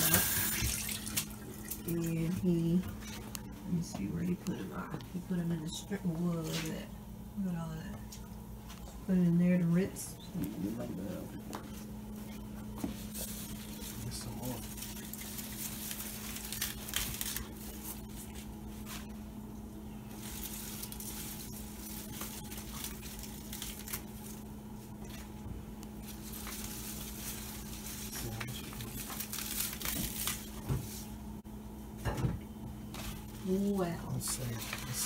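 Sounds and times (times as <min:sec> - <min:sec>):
steady low hum: 0:00.0 - 0:35.0
leaves rustling and tearing: 0:13.1 - 0:19.0, 0:20.1 - 0:24.4, 0:26.0 - 0:31.0.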